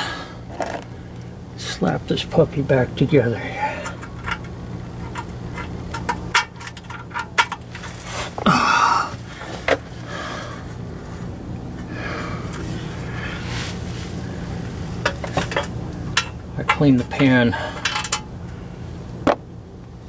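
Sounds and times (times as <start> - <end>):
steady low hum: 0.0 - 20.0
light metal clicks and knocks: 3.8 - 7.8, 15.0 - 18.3
metal scrape: 3.8 - 8.4.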